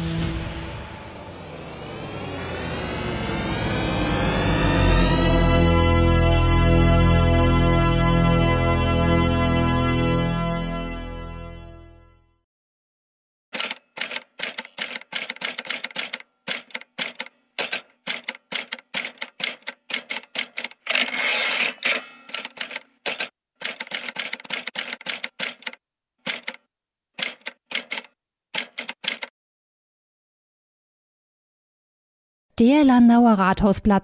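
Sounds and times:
typewriter keys clicking: 13.6 - 26.6, 27.2 - 29.3.

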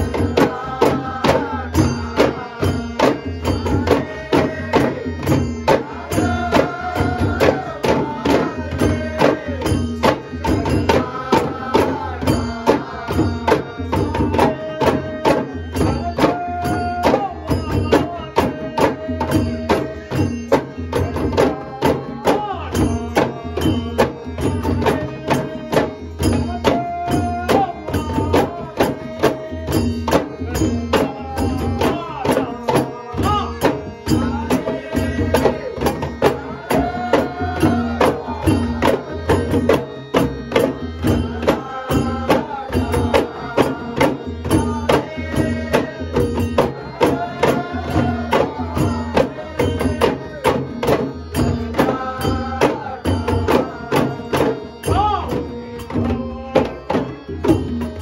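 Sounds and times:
hand drums beating: 0.0 - 58.0.

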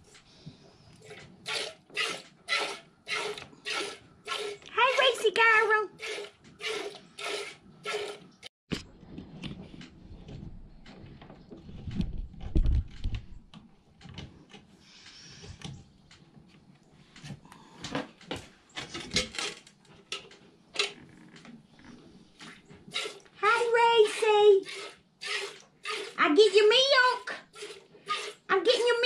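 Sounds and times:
milk squirting into metal pail: 1.0 - 4.7, 6.0 - 8.3, 22.9 - 23.4, 24.6 - 26.6, 27.3 - 28.5.

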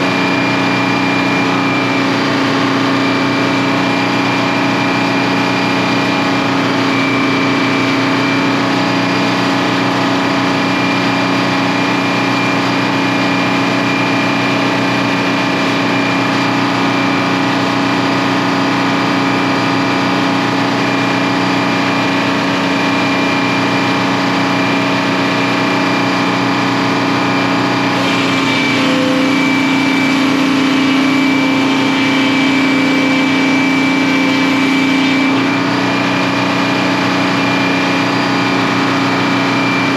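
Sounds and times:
sawmill machinery droning: 0.0 - 39.9
thin high whine: 0.0 - 39.9.

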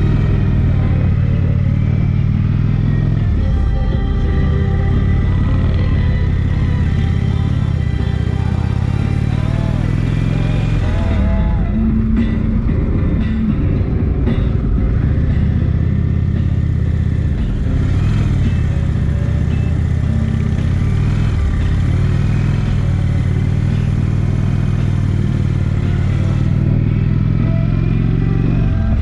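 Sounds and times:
motorcycle engine running: 0.0 - 29.0
wind and road noise: 0.0 - 29.0.

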